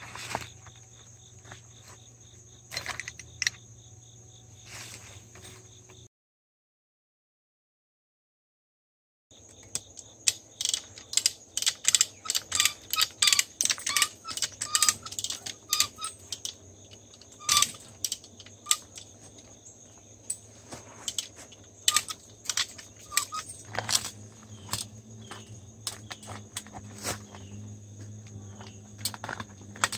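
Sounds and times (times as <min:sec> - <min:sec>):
ratchet clicking: 0:09.6 - 0:19.2, 0:21.1 - 0:24.9
chain clinking: 0:10.3 - 0:26.8.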